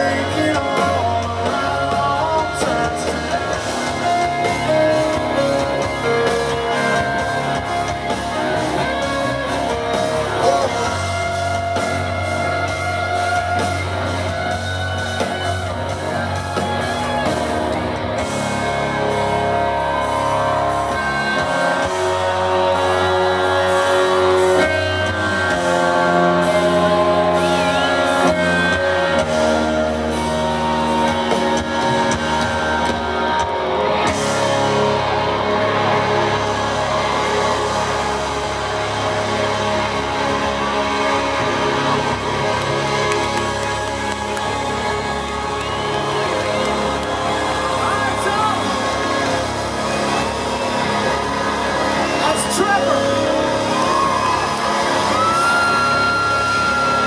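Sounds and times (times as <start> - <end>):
person singing: 0.0 - 7.0
country rock band playing live: 0.0 - 57.0.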